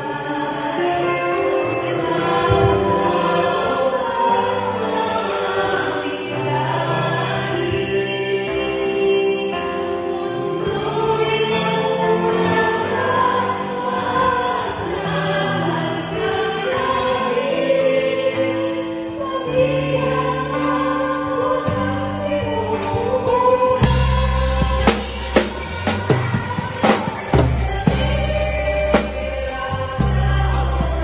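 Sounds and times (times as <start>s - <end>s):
choir singing: 0.0s - 31.0s
drum kit: 20.6s - 31.0s
bass line: 21.7s - 31.0s.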